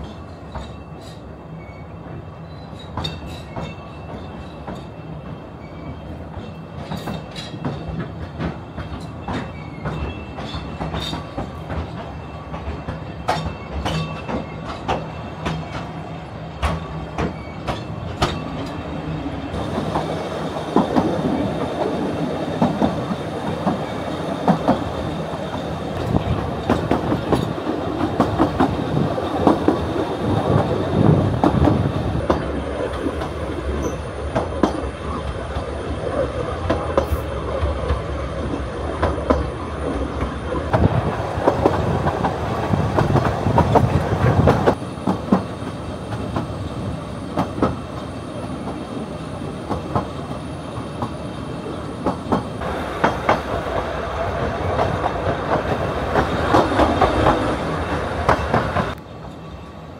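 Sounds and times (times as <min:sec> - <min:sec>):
train wheels clattering on rails: 0:00.0 - 0:59.6.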